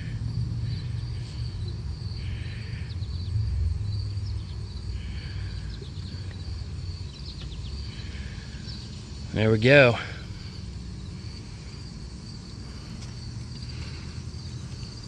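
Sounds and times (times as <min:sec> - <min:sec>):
low rumble: 0:00.0 - 0:09.3
high insect trill: 0:00.0 - 0:15.0
bird chirps: 0:04.0 - 0:09.6.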